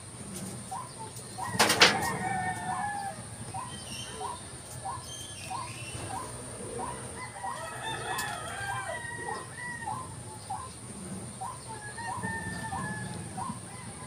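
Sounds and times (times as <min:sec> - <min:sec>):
chickens clucking: 0:00.0 - 0:14.0
rooster crowing: 0:01.4 - 0:03.6, 0:06.1 - 0:10.3, 0:11.6 - 0:14.0.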